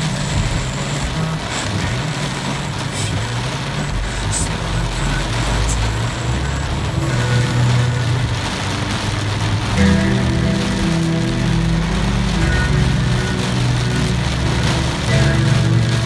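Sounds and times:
engine and road noise hum: 0.0 - 16.0
heavy rain on car roof: 0.0 - 16.0.

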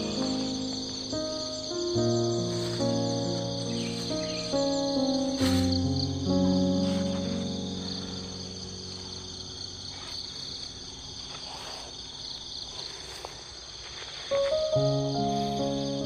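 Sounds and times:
sustained music chord: 0.0 - 9.9
high-pitched insect chorus: 0.0 - 16.0.

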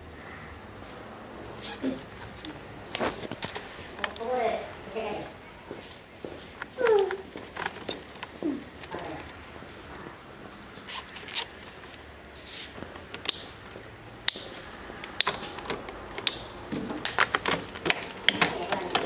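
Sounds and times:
clicks and knocks on plastic panels: 12.9 - 19.0.

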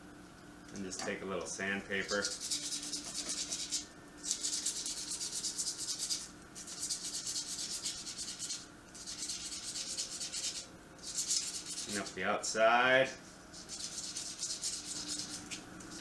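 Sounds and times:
sandpaper rasping on copper tube: 2.0 - 12.1, 13.6 - 15.5.

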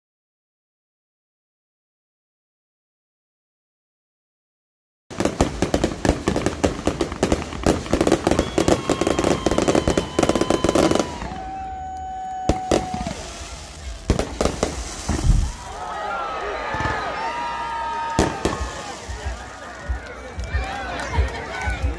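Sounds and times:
fireworks crackling bangs: 5.1 - 21.9
whistle-like tone: 8.2 - 12.4.

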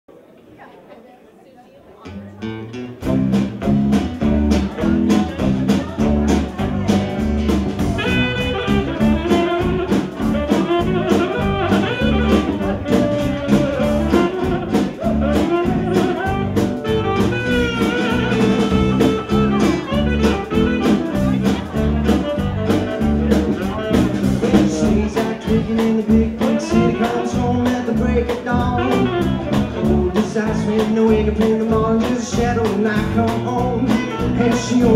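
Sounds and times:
acoustic guitar: 2.0 - 34.9
electric bass: 2.4 - 34.9
drum kit beat: 2.6 - 34.9
saxophone lead: 3.0 - 30.6, 33.7 - 34.9
man singing: 23.0 - 34.9.

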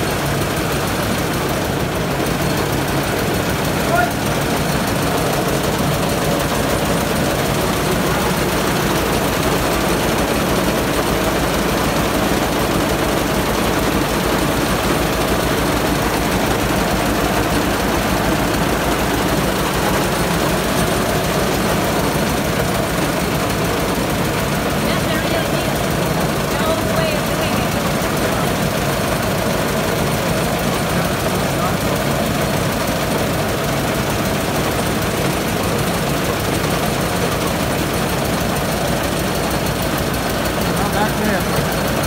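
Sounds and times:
rice mill machine drone: 0.0 - 42.0.

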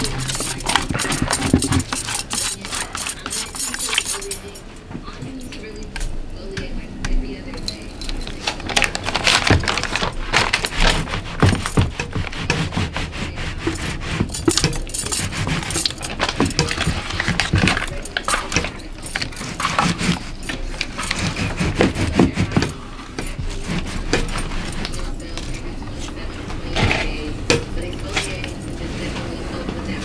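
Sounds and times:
spatula scraping plastic bucket: 0.0 - 3.6, 8.4 - 30.0
metal bangles jangling: 0.0 - 4.7, 7.5 - 8.8, 13.6 - 21.6.

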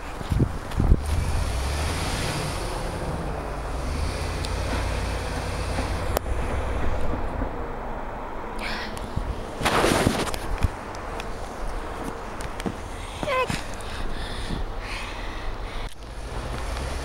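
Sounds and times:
wind rushing on microphone: 0.0 - 3.3
truck engine running at low revs: 0.0 - 13.8, 15.8 - 17.0.

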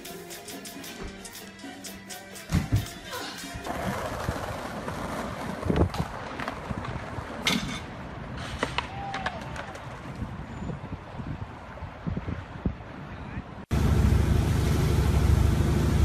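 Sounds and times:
city street hum: 0.0 - 16.0
skateboard rolling on stone paving: 3.6 - 10.4
skateboard knocks and smacks: 8.5 - 10.2.

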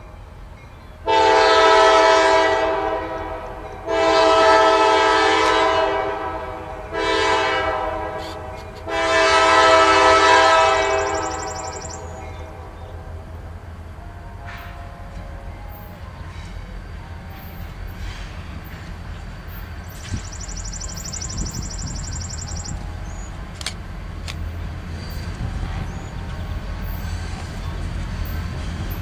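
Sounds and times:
locomotive air horn: 1.0 - 12.8, 14.0 - 15.9.

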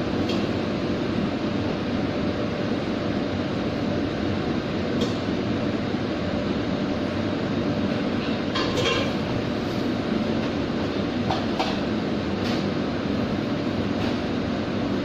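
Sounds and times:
kitchen ventilation drone: 0.0 - 15.0.

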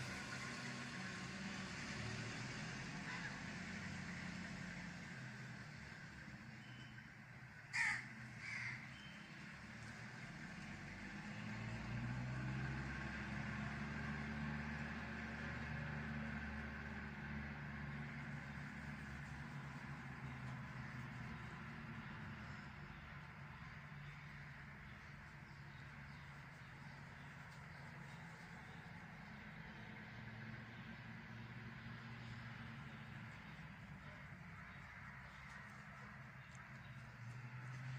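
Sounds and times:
crows cawing: 3.0 - 3.4, 7.6 - 9.0.

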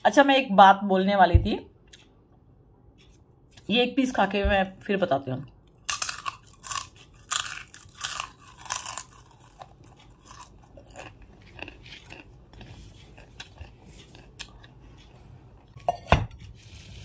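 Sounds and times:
person crunching food: 5.7 - 15.1.

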